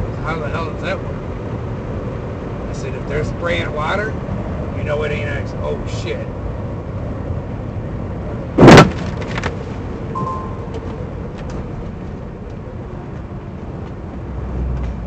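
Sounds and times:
truck road and engine noise: 0.0s - 15.0s
snow slamming into windshield: 8.6s - 9.6s.

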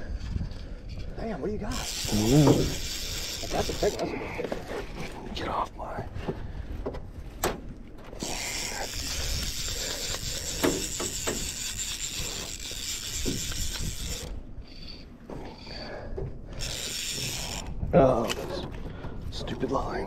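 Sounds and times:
fishing reel ratchet buzzing: 1.7s - 4.2s, 8.2s - 15.0s, 16.5s - 17.8s.

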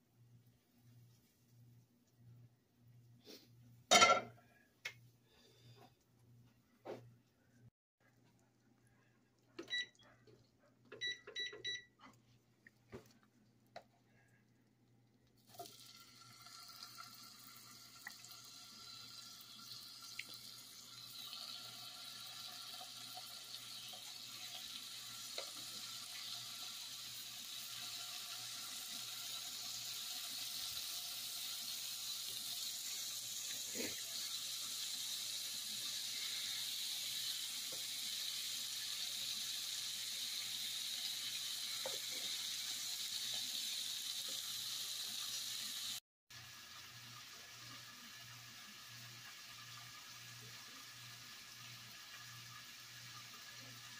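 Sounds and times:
meat sizzling in butter in a pan: 15.5s - 53.9s.

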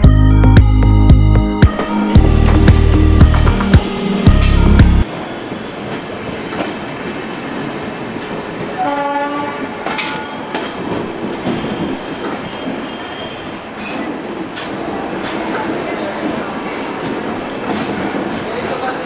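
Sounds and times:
train running: 1.6s - 19.0s
train horn blast: 8.8s - 10.3s.

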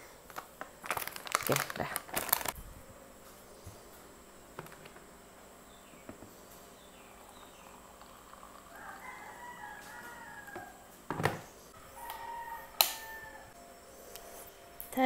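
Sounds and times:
rooster crowing: 8.5s - 11.1s, 11.7s - 13.6s.

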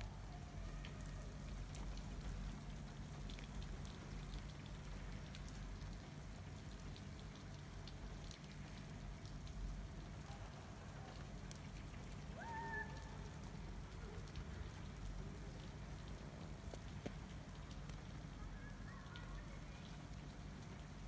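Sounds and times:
light ticks of snow: 15.6s - 20.8s.

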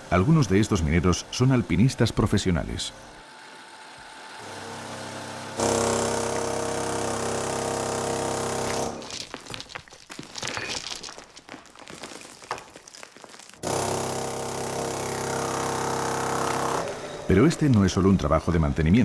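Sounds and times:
motor-driven machine humming: 0.0s - 9.1s, 13.6s - 19.0s
scraping and knocking on rock: 9.0s - 13.6s.

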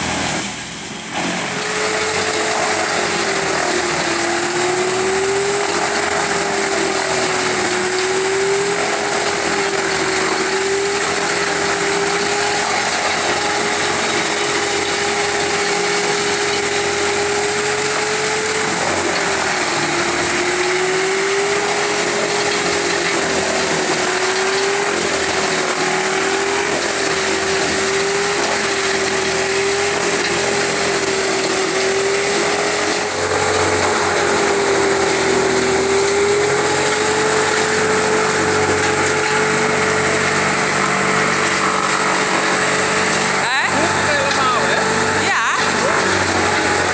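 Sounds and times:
machine engines droning: 0.0s - 46.9s
wood chipper whine: 0.0s - 46.9s.

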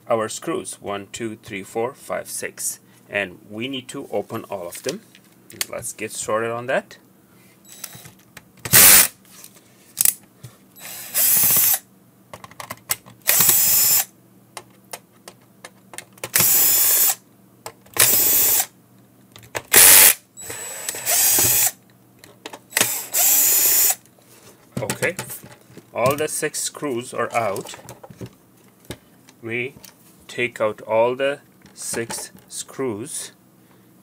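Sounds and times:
cordless drill whirring: 7.7s - 8.1s, 8.7s - 9.1s, 10.8s - 11.8s, 13.3s - 14.1s, 16.3s - 17.2s, 18.0s - 18.7s, 19.7s - 21.8s, 22.7s - 24.0s.

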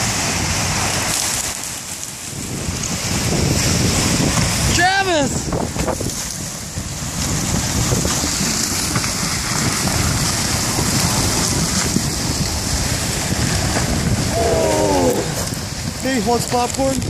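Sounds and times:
river ice crackling: 0.0s - 17.0s
wind buffeting microphone: 0.0s - 17.0s.

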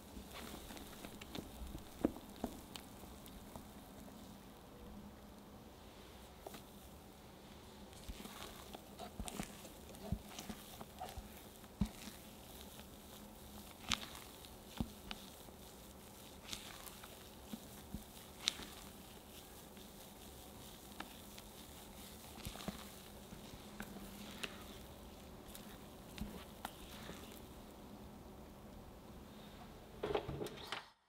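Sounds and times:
soft wet folding sounds: 0.0s - 27.9s.

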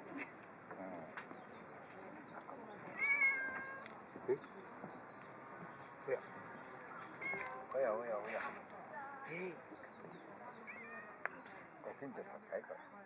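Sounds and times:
cat meowing: 3.0s - 3.8s, 7.2s - 7.6s.

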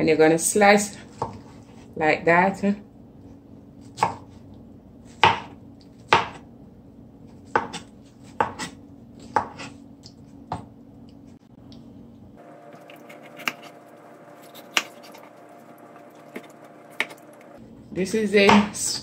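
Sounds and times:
knife slicing pineapple: 12.7s - 17.5s.

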